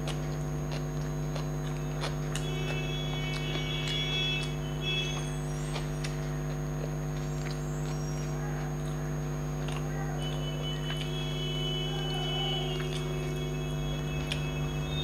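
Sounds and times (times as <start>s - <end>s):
chewing: 0.0s - 15.0s
electrical hum: 0.0s - 15.0s
fingers mixing wet rice: 0.0s - 15.0s.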